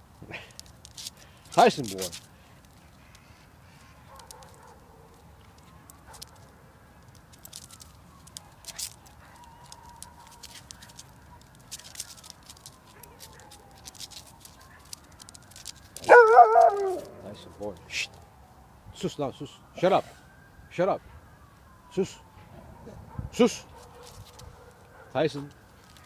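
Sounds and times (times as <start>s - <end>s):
dogs scuffling: 0.6s - 18.2s
dog yelping: 16.0s - 17.3s.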